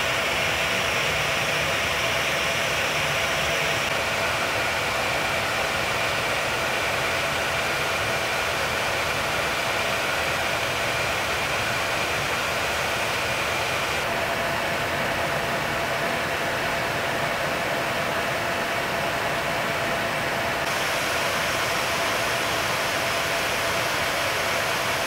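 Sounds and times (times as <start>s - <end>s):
aircraft cockpit engine and airflow: 0.0s - 25.0s.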